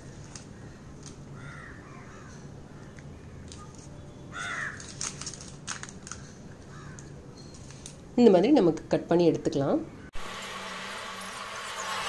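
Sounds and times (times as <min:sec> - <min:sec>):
crow cawing: 0:01.4 - 0:02.4, 0:04.3 - 0:04.8, 0:06.7 - 0:07.1.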